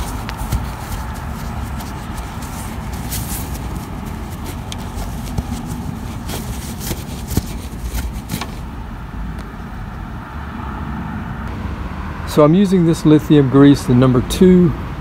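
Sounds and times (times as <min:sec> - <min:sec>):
rag rubbing metal: 0:00.0 - 0:08.7
low background rumble: 0:00.0 - 0:10.3.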